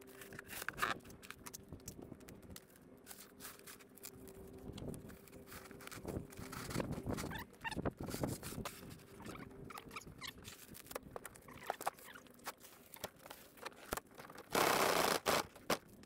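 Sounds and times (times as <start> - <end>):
adhesive crackles and squeaks: 0.0 - 16.0
loud ripping of floor covering: 14.5 - 15.9.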